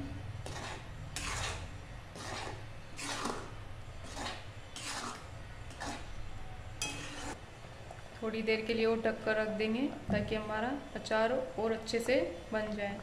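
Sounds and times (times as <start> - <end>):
metal spatula scraping a pan: 0.4 - 6.2, 6.8 - 7.4.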